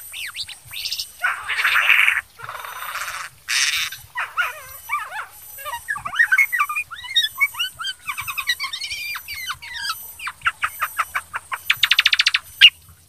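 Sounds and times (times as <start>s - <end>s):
bulbul singing: 0.0s - 12.8s
bird trilling: 0.1s - 12.8s.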